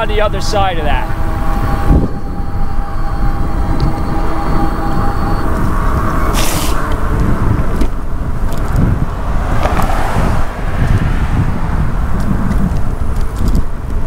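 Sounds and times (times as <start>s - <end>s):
road traffic: 0.0s - 14.0s
wind buffeting microphone: 0.0s - 14.0s
short hiss: 6.4s - 6.8s.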